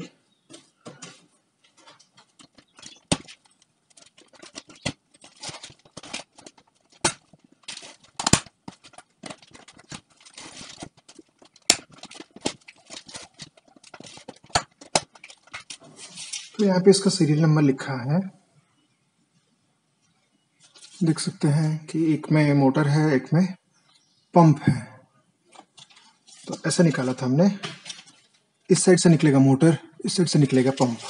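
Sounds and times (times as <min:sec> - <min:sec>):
packaging rustling and clicking: 0:00.5 - 0:16.6, 0:30.4 - 0:31.0.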